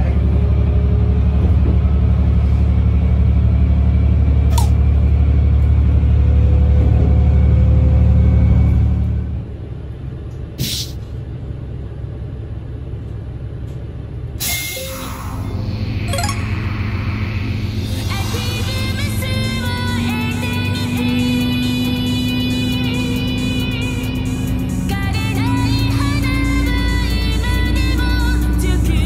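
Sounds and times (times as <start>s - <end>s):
train rolling rumble: 0.0s - 15.9s, 16.8s - 29.0s
diesel railcar engine drone: 0.0s - 29.0s
air brake hiss: 10.6s - 11.1s, 14.4s - 15.6s.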